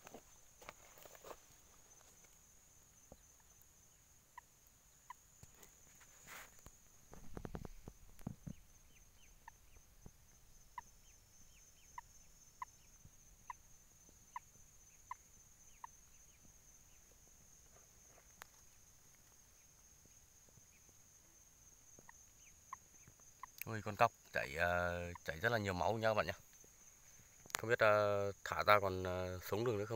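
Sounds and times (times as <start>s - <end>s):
short chirping calls: 7.5s - 21.0s, 22.0s - 26.4s.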